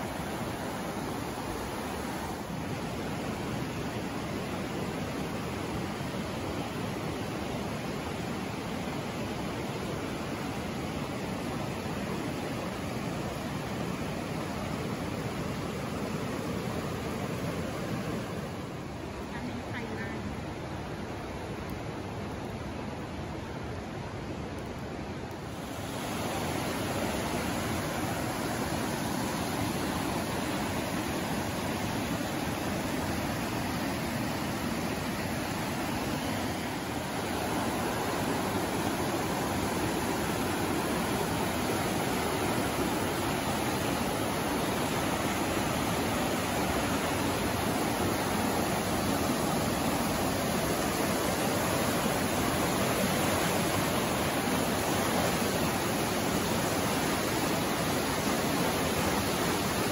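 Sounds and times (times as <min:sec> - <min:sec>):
flooded creek rushing: 0:00.0 - 0:59.9.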